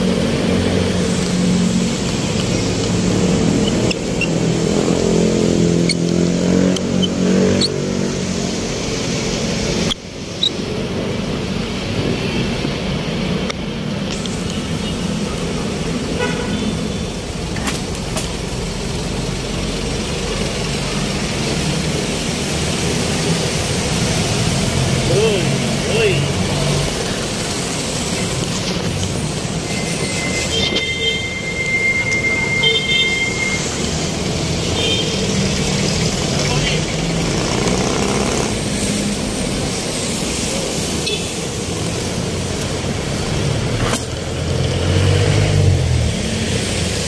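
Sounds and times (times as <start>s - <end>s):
traffic hum: 0.0s - 47.0s
vehicle engines passing: 0.0s - 47.0s
car horn toots: 16.2s - 16.8s.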